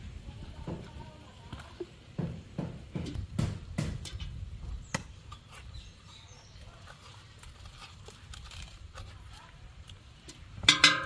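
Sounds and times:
machete chopping coconuts: 2.2 - 5.2
spoon scraping coconut: 4.8 - 11.0.

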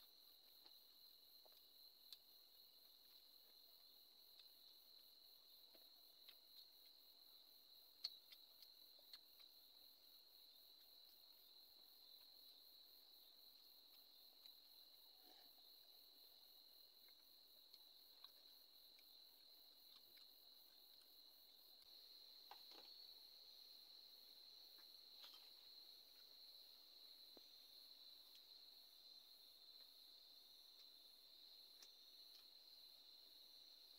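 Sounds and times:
crickets trilling: 0.0 - 33.9.

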